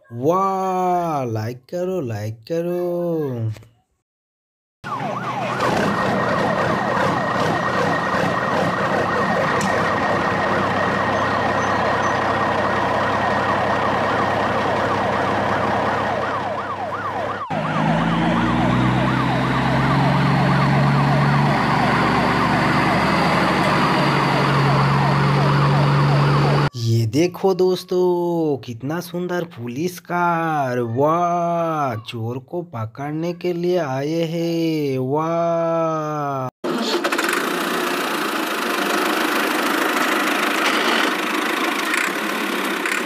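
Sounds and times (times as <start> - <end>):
electronic siren yelping: 4.8 - 26.8.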